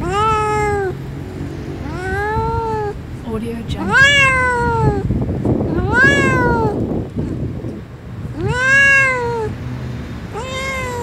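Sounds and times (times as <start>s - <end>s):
kitten meowing: 0.0s - 1.0s, 1.8s - 3.0s, 3.8s - 5.1s, 5.7s - 6.9s, 8.4s - 9.6s, 10.3s - 11.0s.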